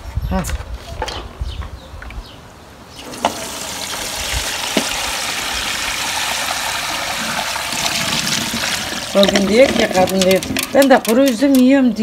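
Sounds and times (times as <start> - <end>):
water running: 3.0 - 10.5.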